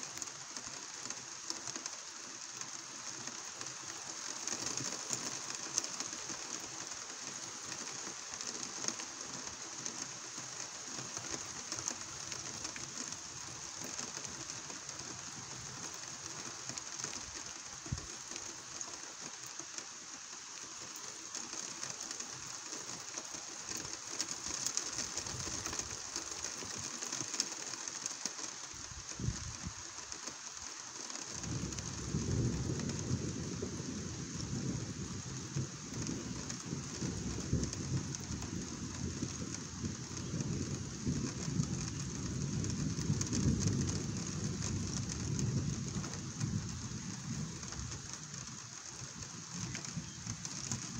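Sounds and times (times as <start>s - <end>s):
rain falling: 0.0s - 50.9s
thunder rumble: 31.3s - 50.9s.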